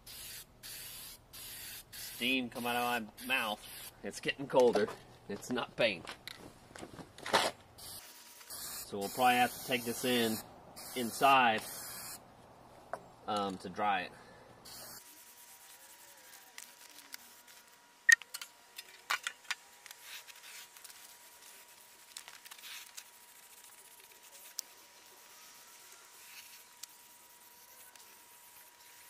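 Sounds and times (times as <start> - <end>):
aerosol spray can hissing: 0.0 - 3.9, 7.8 - 12.2, 14.6 - 17.4, 20.0 - 29.0.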